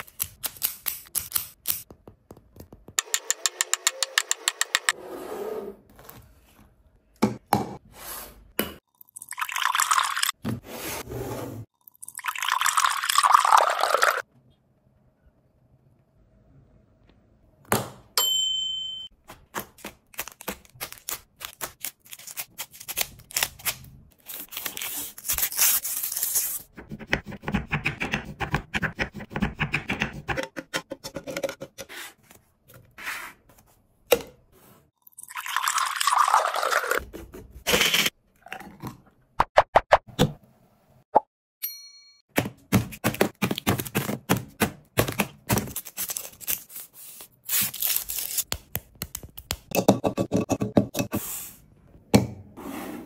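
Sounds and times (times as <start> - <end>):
milkshake pouring into a glass: 9.1 - 10.3, 12.0 - 14.2, 35.2 - 37.0.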